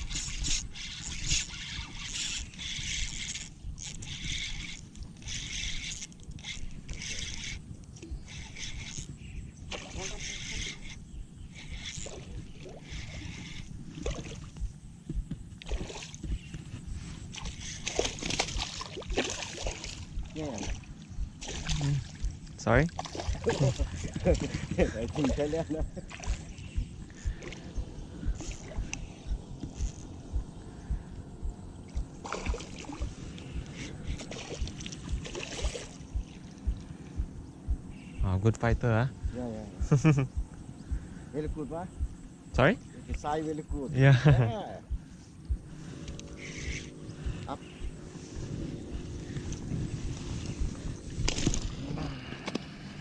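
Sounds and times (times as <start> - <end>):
wind rumbling on microphone: 0.0 - 53.0
dull low thump: 14.5 - 15.5, 21.2 - 24.9, 25.8 - 45.8, 46.6 - 51.8
water splashes: 17.4 - 26.6, 31.9 - 37.0.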